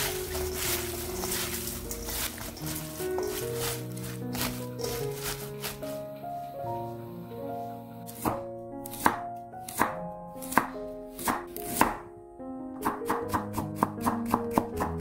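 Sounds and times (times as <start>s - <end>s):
soft background music: 0.0s - 15.0s
knife cutting carrot on wooden board: 8.1s - 12.0s.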